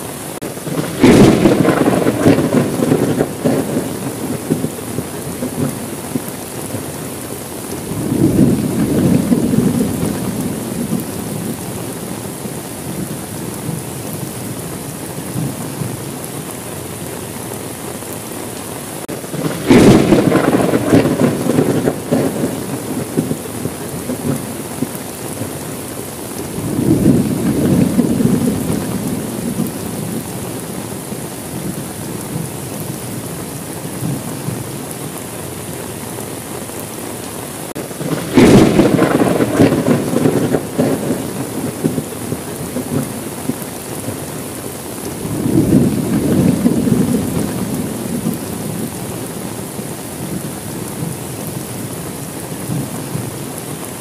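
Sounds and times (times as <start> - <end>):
steady rain: 0.0 - 54.0
thunder rumbling: 0.0 - 54.0.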